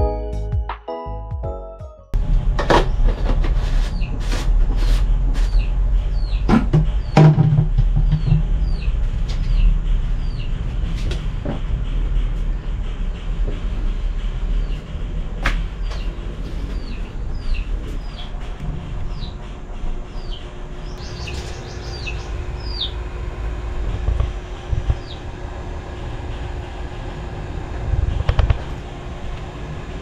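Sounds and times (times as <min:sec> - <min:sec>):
steady low rumble: 0:02.1 - 0:30.0
bird chirping: 0:15.8 - 0:19.4, 0:20.1 - 0:23.0.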